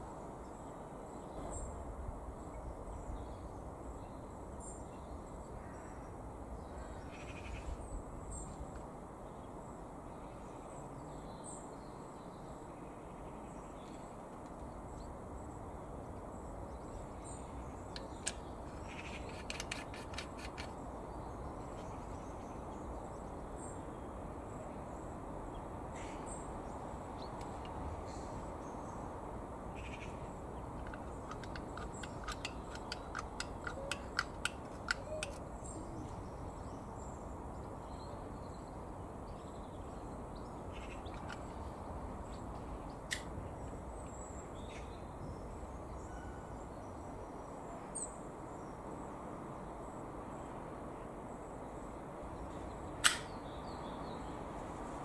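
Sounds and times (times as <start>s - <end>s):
steady background noise: 0.0s - 55.0s
rapid clicking chatter: 30.8s - 35.4s.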